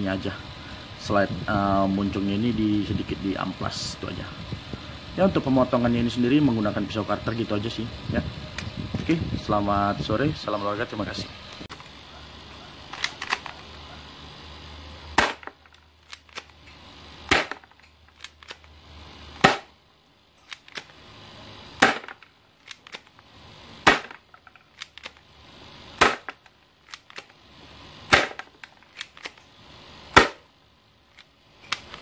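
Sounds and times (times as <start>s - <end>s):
pistol cocking clicks: 12.9s - 13.6s, 15.2s - 16.6s, 17.3s - 18.7s, 20.4s - 21.0s, 21.8s - 23.2s, 23.9s - 25.3s, 26.0s - 27.4s, 28.1s - 29.4s, 31.1s - 32.0s
airsoft pistol shots: 15.2s - 15.6s, 17.3s - 17.7s, 19.4s - 19.7s, 21.8s - 22.2s, 23.8s - 24.2s, 26.0s - 26.4s, 28.1s - 29.3s, 30.1s - 30.5s.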